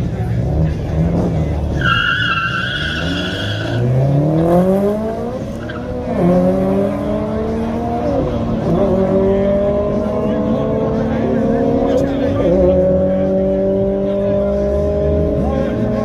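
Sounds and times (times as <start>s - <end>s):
racing engines revving: 0.0s - 16.0s
tyres squealing: 1.8s - 3.9s.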